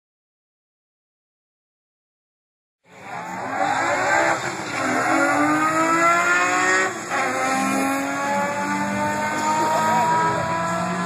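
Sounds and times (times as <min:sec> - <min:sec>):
car engine at full throttle: 0:02.9 - 0:11.0.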